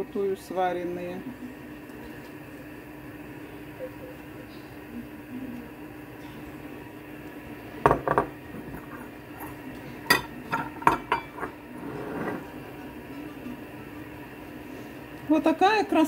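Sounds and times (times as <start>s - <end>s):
kitchenware clinking on pot: 7.9s - 11.6s.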